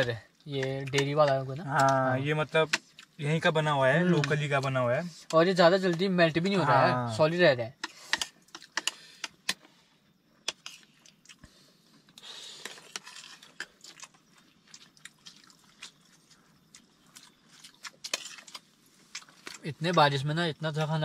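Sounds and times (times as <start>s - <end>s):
person chewing and eating: 10.4s - 19.6s.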